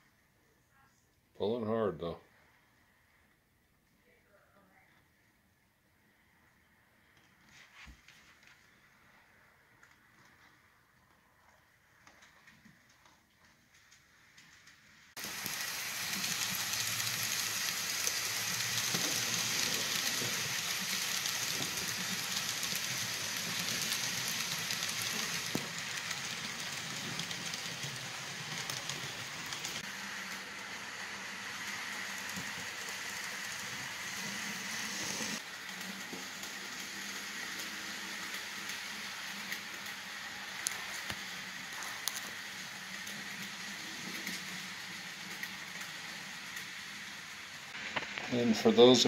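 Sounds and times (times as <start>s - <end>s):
rail clicks: 12.0s - 48.4s
low train rumble: 15.2s - 47.6s
steam train hiss: 15.2s - 49.0s.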